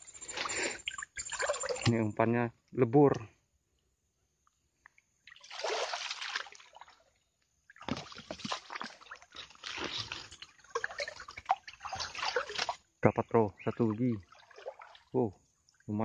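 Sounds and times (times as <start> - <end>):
swamp water splashing: 0.3 - 2.0, 5.2 - 12.8, 13.6 - 16.0.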